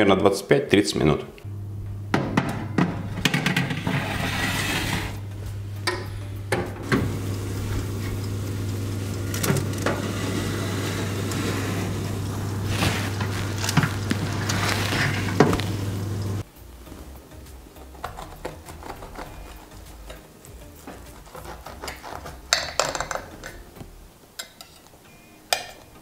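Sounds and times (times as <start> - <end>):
oven humming: 1.4 - 16.5
metal tray scraping on oven rack: 2.8 - 5.2, 6.8 - 16.4
oven door clunking: 5.9 - 8.5.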